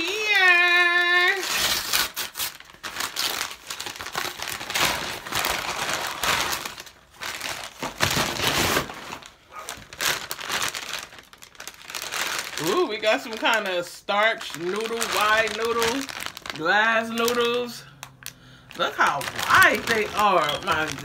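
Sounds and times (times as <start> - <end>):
packaging crinkling and rustling: 0.0 - 21.0.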